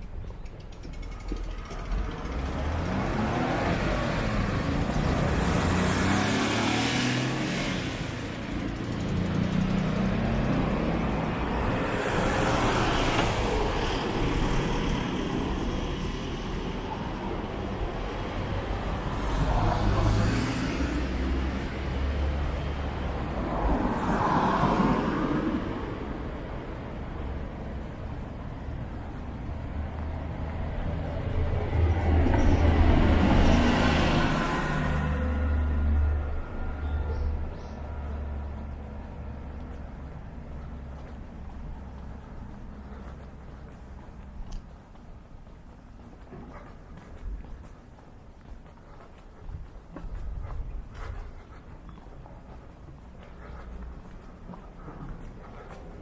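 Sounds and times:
cars passing close by: 0.0s - 56.0s
street noise: 0.0s - 56.0s.

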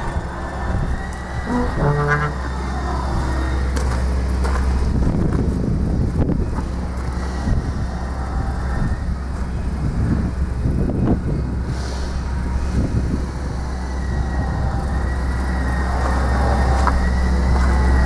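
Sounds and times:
low hum: 0.0s - 18.0s
wind on microphone: 4.7s - 18.0s.

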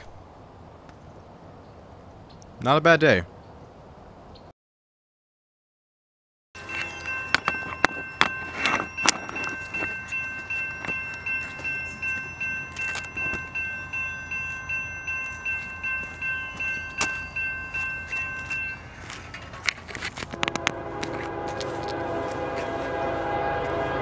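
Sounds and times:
crossing warning bell ringing: 6.6s - 24.0s.

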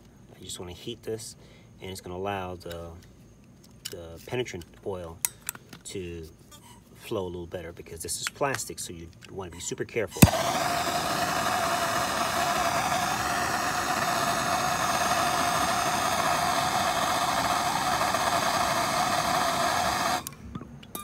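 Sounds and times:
gas torch roaring hiss: 10.2s - 20.4s.

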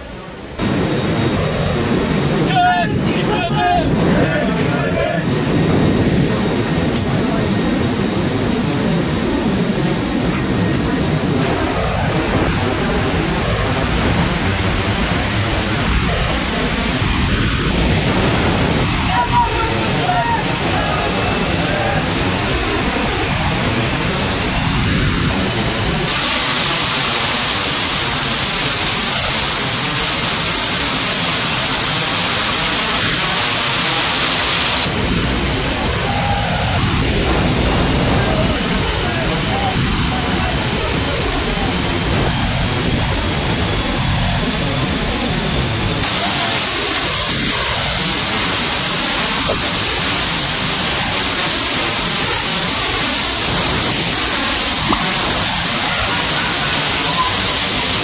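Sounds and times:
jet engine and air rush: 0.0s - 58.0s
sharp hiss: 26.1s - 35.0s, 46.0s - 58.0s.

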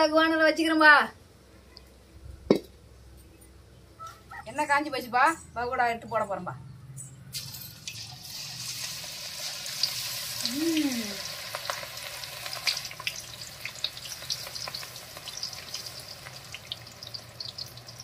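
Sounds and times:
batter sizzling in hot oil: 7.4s - 18.0s
crackling pops of frying: 7.4s - 18.0s.

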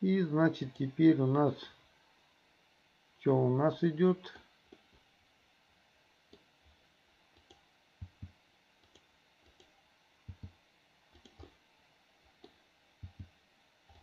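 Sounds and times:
mouse and keyboard clicks: 7.4s - 9.7s, 10.3s - 11.6s.

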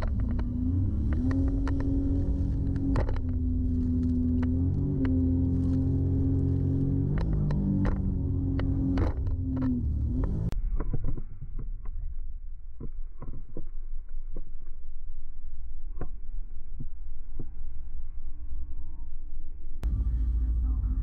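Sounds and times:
jet ski engine rumble: 0.0s - 12.2s, 19.8s - 21.0s.

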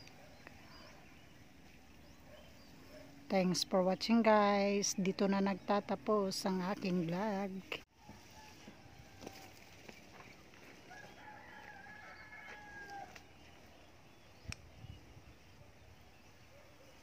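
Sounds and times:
rooster crowing faintly: 7.9s - 9.7s, 10.7s - 13.4s.

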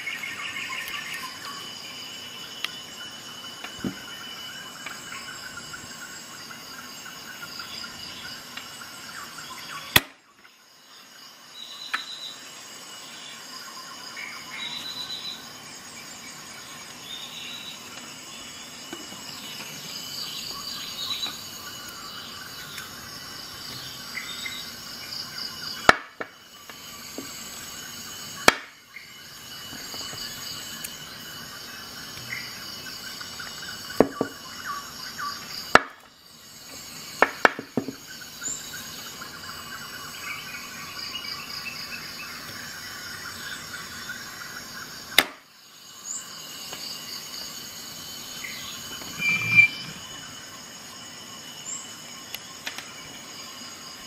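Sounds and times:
high-pitched chirring: 49.0s - 50.1s.

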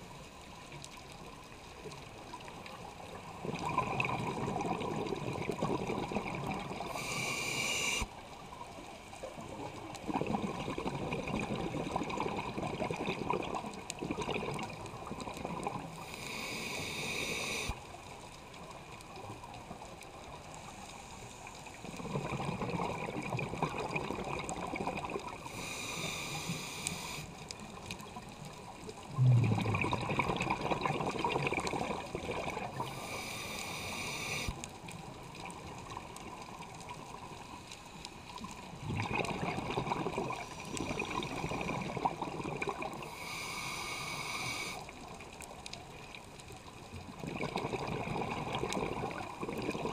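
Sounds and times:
bubbling exhale: 3.4s - 8.1s, 10.1s - 17.8s, 22.0s - 27.4s, 29.1s - 34.6s, 38.8s - 44.9s
regulator hissing inhale: 6.8s - 8.1s, 16.0s - 17.8s, 25.4s - 27.4s, 32.8s - 34.6s, 43.0s - 44.9s.

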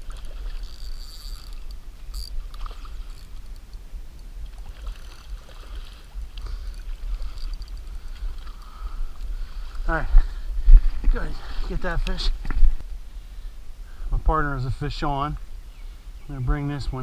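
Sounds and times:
wind buffeting microphone: 1.7s - 14.6s.

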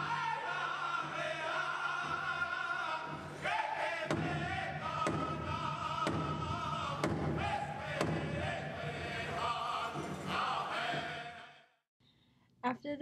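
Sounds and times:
singers chanting in chorus: 0.0s - 11.7s
big drum struck hard: 3.5s - 9.0s.

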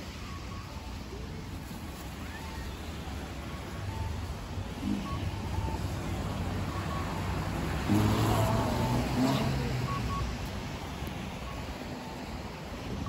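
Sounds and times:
faint electronic beeps: 0.0s - 13.0s
motor vehicle passing: 4.8s - 10.8s.

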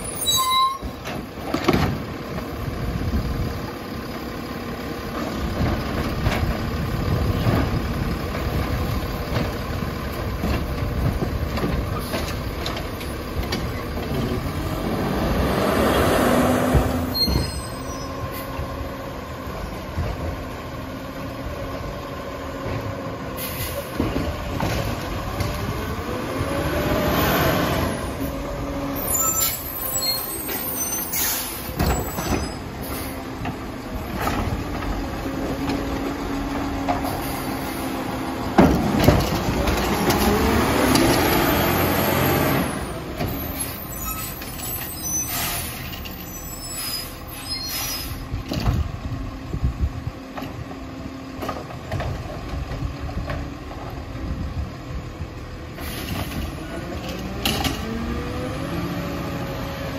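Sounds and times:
garbage truck diesel engine: 0.0s - 59.9s
air brake hissing: 23.4s - 23.9s, 29.2s - 31.8s, 45.1s - 45.9s, 46.6s - 48.3s, 55.8s - 56.4s.

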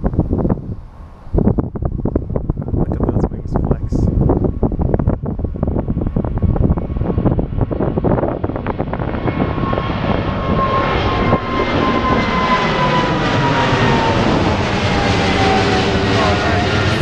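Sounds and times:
jet engine roar: 0.0s - 17.0s
wind buffeting microphone: 0.0s - 17.0s
jet whine falling in pitch: 8.8s - 17.0s.

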